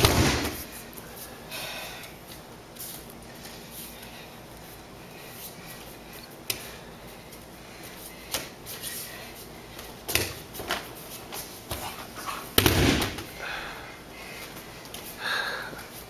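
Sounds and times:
bare feet slapping on mats: 0.0s - 0.8s, 9.8s - 13.3s.

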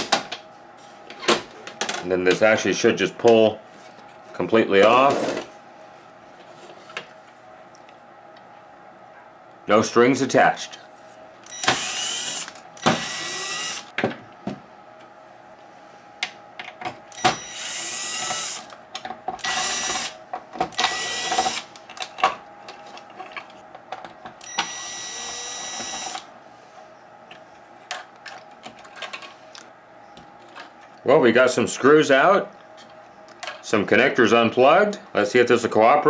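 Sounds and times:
cordless drill whining: 11.5s - 13.9s, 17.2s - 18.7s, 19.4s - 20.1s, 20.8s - 21.6s, 24.4s - 26.2s.

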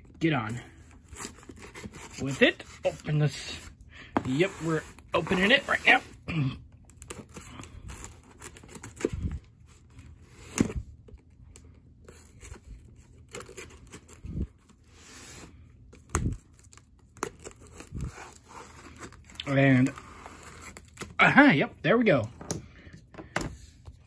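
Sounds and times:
tape and cardboard tearing: 0.8s - 3.2s, 15.0s - 21.2s.

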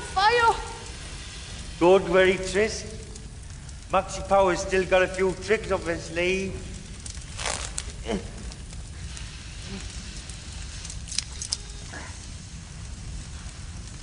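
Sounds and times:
fire crackling and snapping: 0.0s - 14.0s
fire rumbling and hissing: 0.0s - 14.0s.

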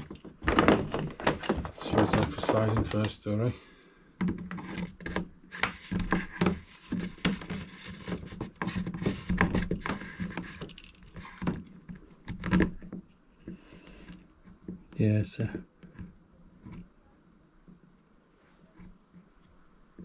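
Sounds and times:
power cable rubbing and knocking: 0.0s - 3.2s, 4.3s - 16.9s.

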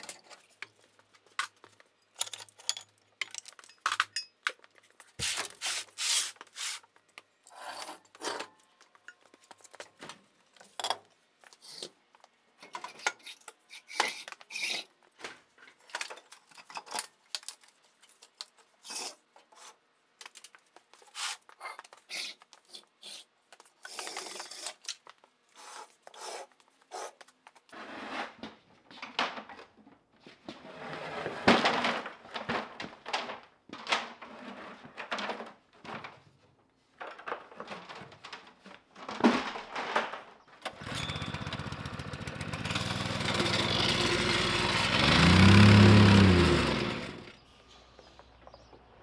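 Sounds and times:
metal objects clattering on concrete: 1.4s - 4.7s.

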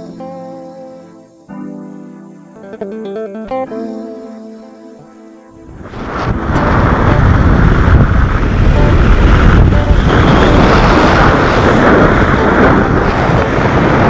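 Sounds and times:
music: 0.0s - 14.0s
wind buffeting microphone: 5.6s - 14.0s.

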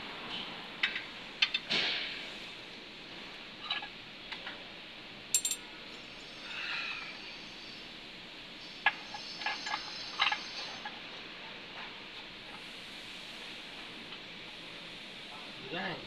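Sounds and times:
metal chain clinks and taps: 5.4s - 5.6s.

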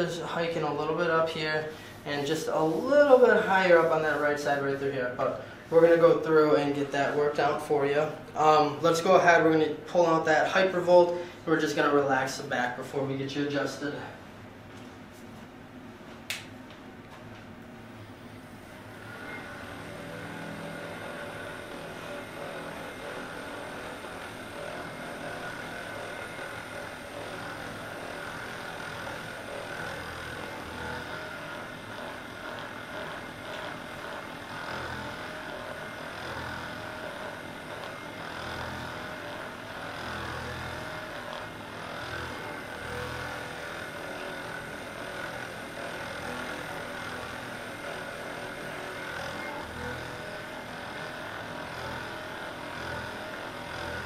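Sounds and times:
massage gun motor buzzing: 0.0s - 54.0s.

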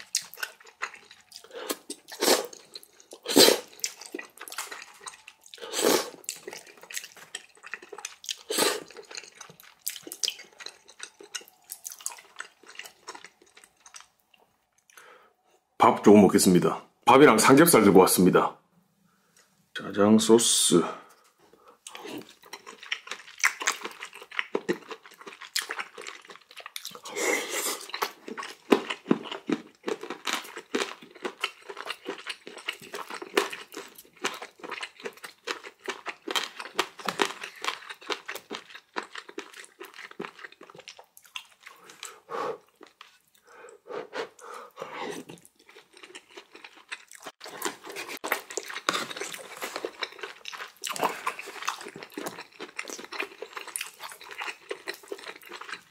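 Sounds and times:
person chewing with smacks: 0.0s - 15.0s, 21.8s - 55.9s.

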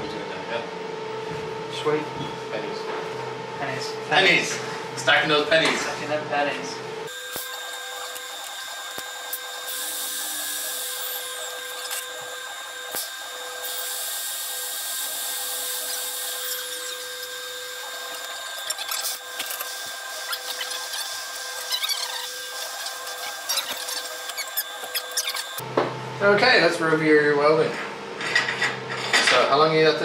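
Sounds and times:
welding arc buzzing: 4.1s - 26.5s.

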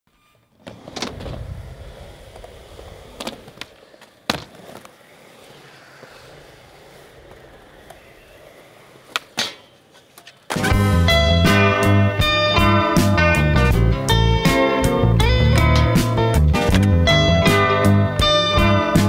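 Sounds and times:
skateboard wheels rolling on concrete: 0.1s - 19.0s
skateboard clacking on ground: 0.6s - 10.8s.

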